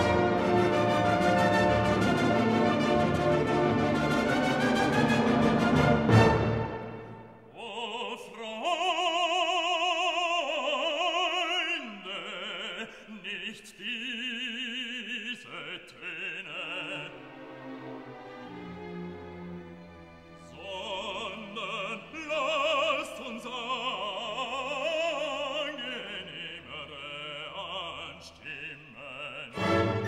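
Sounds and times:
orchestra playing: 0.0s - 7.5s, 17.0s - 21.3s, 29.5s - 30.0s
operatic singing: 0.0s - 30.0s.

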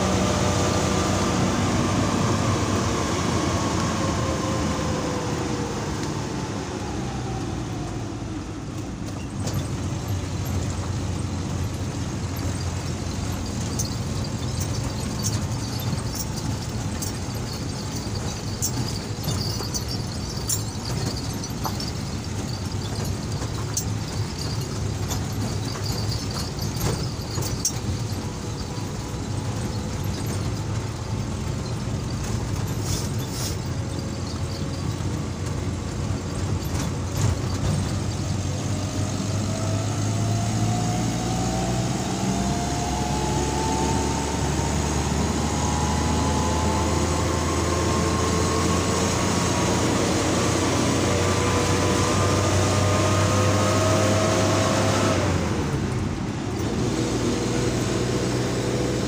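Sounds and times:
road noise: 0.0s - 59.0s
vehicle engine: 0.0s - 59.0s.

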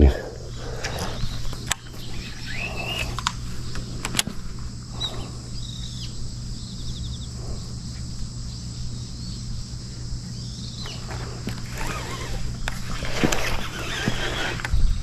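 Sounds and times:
faint high bird chirps: 0.9s - 3.2s.

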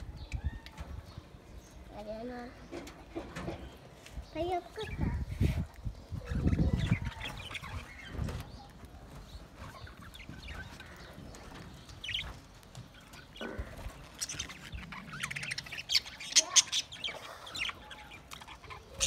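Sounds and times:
budgerigars chirping: 6.2s - 19.0s.

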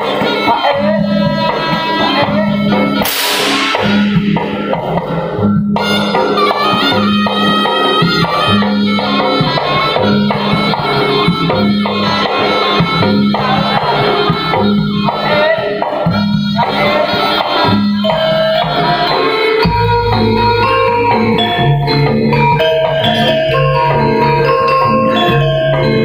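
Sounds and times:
drums: 0.0s - 26.0s
low beat: 3.0s - 6.2s
gongs: 3.0s - 6.5s.

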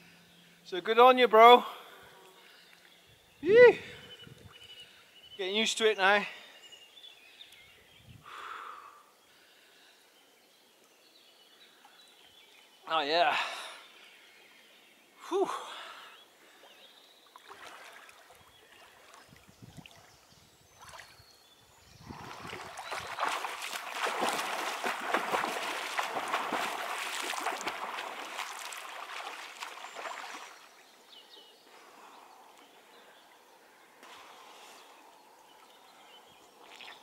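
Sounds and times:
person swimming splashing: 17.4s - 19.0s, 22.1s - 30.7s.

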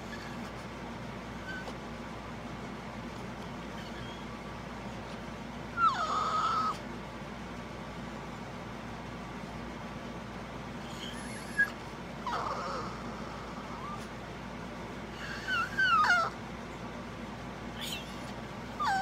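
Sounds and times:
dog whining: 0.0s - 1.9s, 3.1s - 7.0s, 10.8s - 14.2s, 15.1s - 16.8s, 17.7s - 19.0s.

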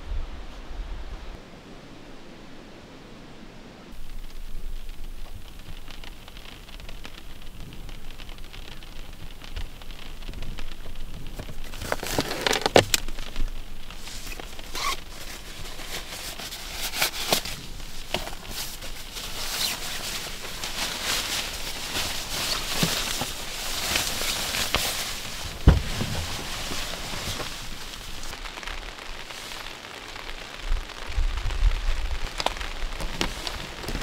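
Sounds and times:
rain pattering on a car roof: 3.9s - 34.0s
nylon jacket rustling: 11.5s - 30.5s, 32.2s - 34.0s.

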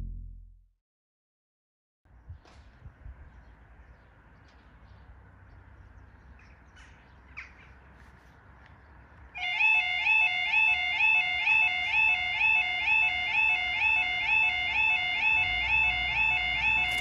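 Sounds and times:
low rumble: 0.0s - 0.6s
level crossing warning alarm: 9.4s - 17.0s.

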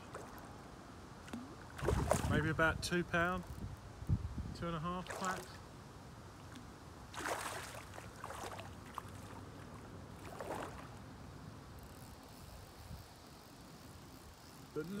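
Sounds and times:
fish splashing at the surface: 1.3s - 2.4s, 7.1s - 9.4s, 10.2s - 11.0s.

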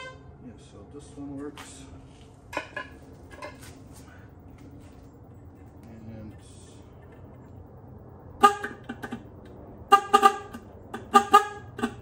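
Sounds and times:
car horn short toots: 0.0s - 0.3s, 8.4s - 9.2s, 9.9s - 12.0s.

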